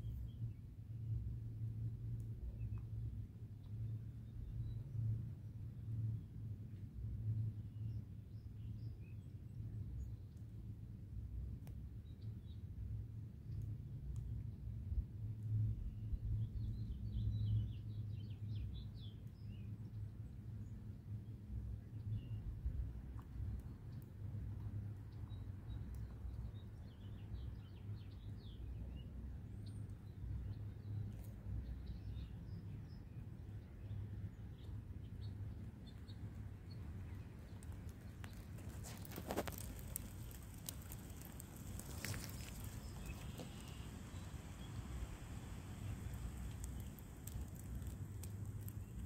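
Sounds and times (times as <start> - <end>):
low steady rumble: 0.0 - 18.4, 27.7 - 49.0
light taps and crackles: 11.6 - 11.8, 13.5 - 14.5, 22.9 - 27.2, 35.9 - 49.0
steady low rumble: 36.3 - 49.0
bird chirping: 38.2 - 49.0.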